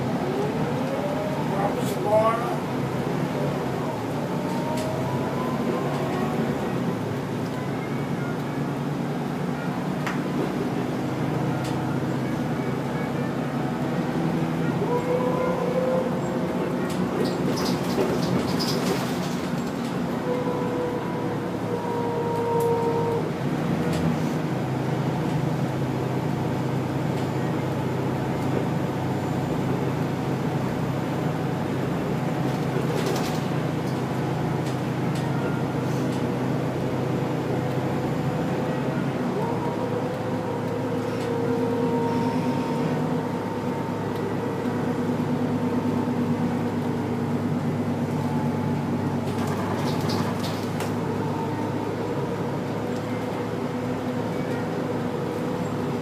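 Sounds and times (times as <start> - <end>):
bus engine and road rumble: 0.0 - 56.0.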